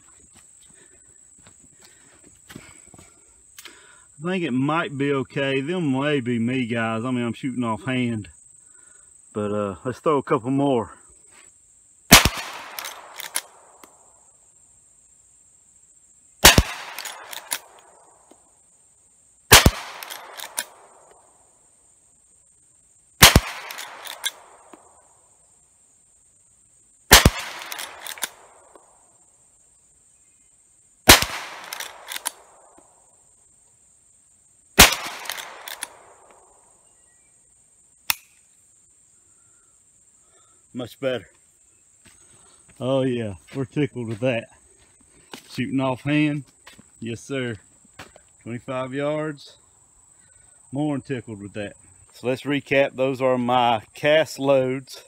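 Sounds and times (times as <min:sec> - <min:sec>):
high insect drone: 0:00.0 - 0:55.0
rifle shots: 0:12.1 - 0:13.8, 0:16.4 - 0:17.9, 0:19.5 - 0:21.0, 0:23.2 - 0:24.8, 0:27.1 - 0:28.7, 0:31.0 - 0:32.7, 0:34.8 - 0:36.5
small click: 0:38.1 - 0:38.4.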